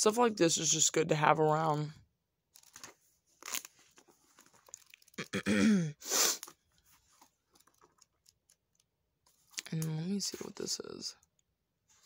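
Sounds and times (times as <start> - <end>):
book pages rustling: 2.5 - 5.2, 6.3 - 10.8.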